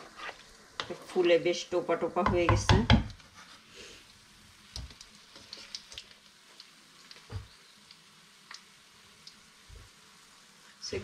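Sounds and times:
oil sizzling: 0.0 - 11.0.

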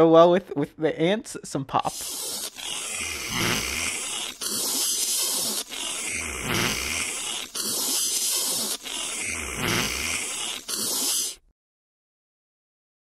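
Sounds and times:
cartoon slurping: 1.9 - 11.5.

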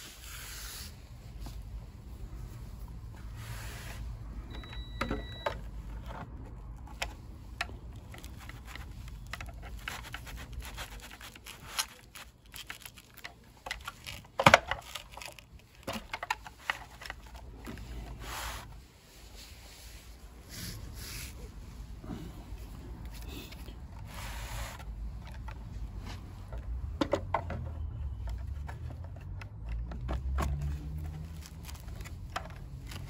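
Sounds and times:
plastic box handling clicks and knocks: 11.4 - 18.0, 25.1 - 33.0.

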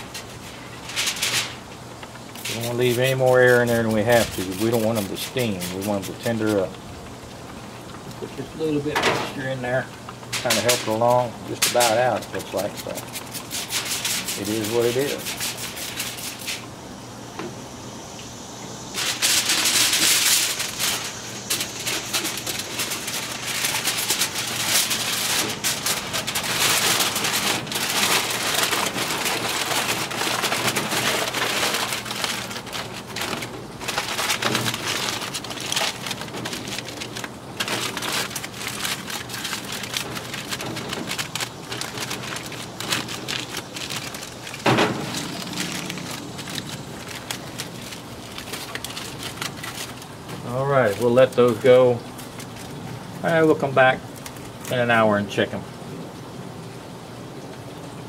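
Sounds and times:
aluminium foil crinkling: 0.0 - 16.7, 18.9 - 55.0.

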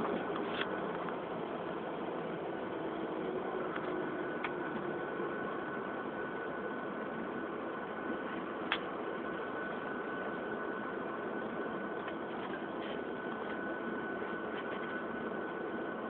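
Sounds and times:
jet engine and cabin noise: 0.0 - 16.0
thin steady whine: 0.0 - 16.0.

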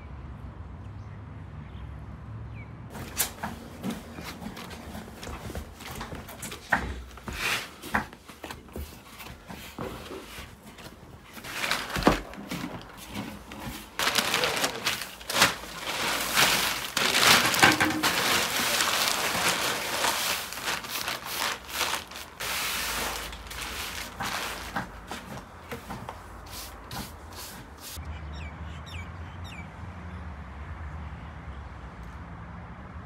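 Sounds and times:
plastic sheeting rustling and crinkling: 2.9 - 28.0.

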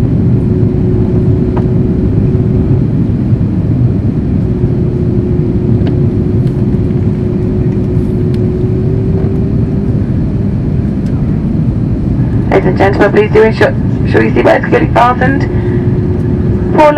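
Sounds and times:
engine and airflow roar: 0.0 - 16.9
steady hum: 0.0 - 16.9.

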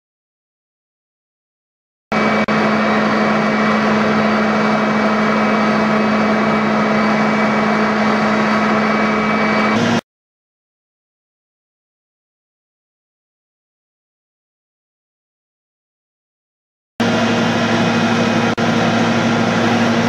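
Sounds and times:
diesel fire pump droning: 2.1 - 10.0, 17.0 - 20.0.

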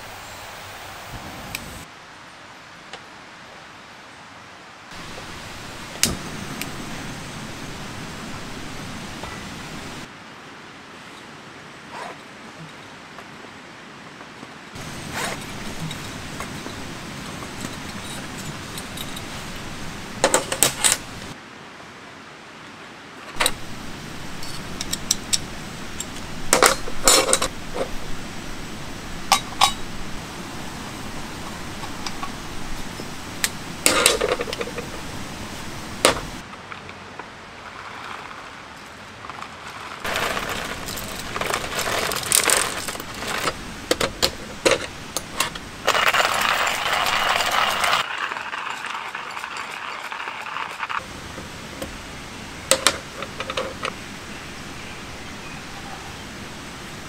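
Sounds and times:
rustling and scraping: 14.8 - 21.4, 23.3 - 28.3, 31.4 - 54.0
metal coffee gear clinking: 15.1 - 19.4.

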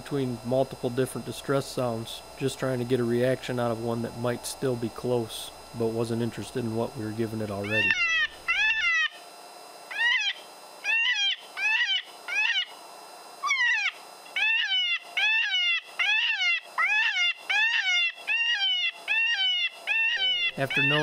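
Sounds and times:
high squealing distress cries: 7.6 - 9.2, 9.9 - 12.7, 13.4 - 21.0.

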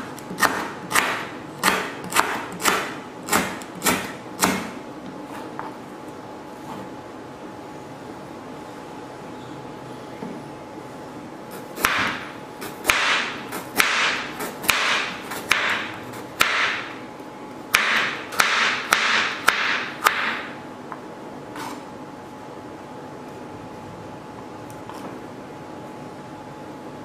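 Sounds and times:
knife slicing on cutting board: 21.5 - 21.9.

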